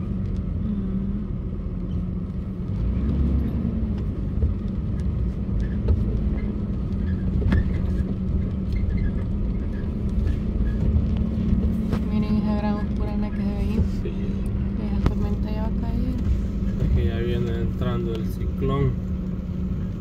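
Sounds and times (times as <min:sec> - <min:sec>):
car cabin rumble and hum: 0:00.0 - 0:20.0.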